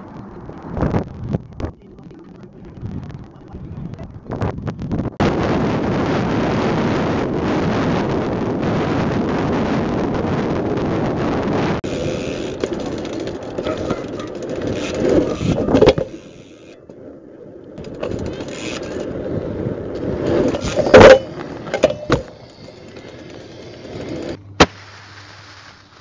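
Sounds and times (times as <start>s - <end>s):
bike tyres rolling on pavement: 0.0s - 26.0s
car wind and road noise: 0.0s - 26.0s
bike clattering knocks: 11.9s - 16.4s, 20.3s - 24.4s.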